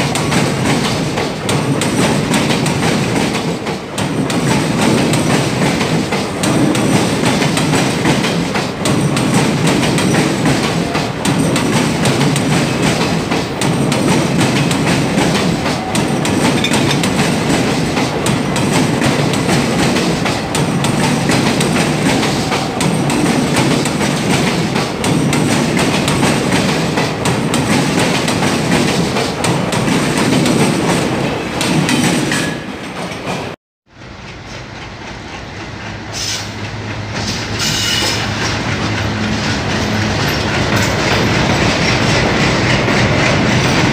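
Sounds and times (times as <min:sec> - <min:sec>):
train wheels clattering over points: 0:00.0 - 0:33.6
quiet train rumble: 0:00.0 - 0:43.9.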